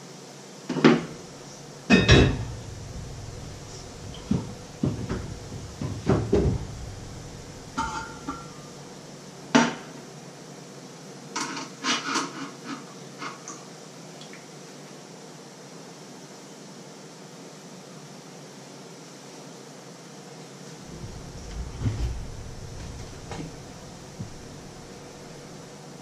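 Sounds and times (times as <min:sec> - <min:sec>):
pots and pans clattering: 0:01.0 - 0:08.8
metallic ring: 0:01.8 - 0:08.9.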